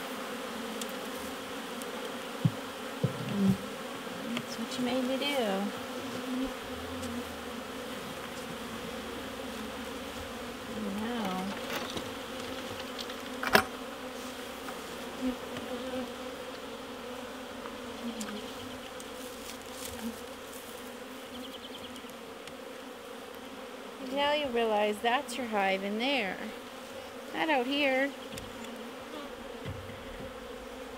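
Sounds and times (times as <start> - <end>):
honey bees buzzing: 0.0 - 30.9
hive lid knock: 1.8 - 5.2, 6.1 - 14.0, 29.5 - 30.9.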